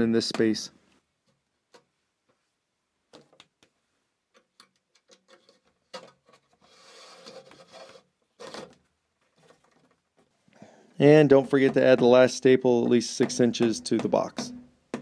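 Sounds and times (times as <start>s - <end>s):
cable rustling through box: 5.2s - 10.4s.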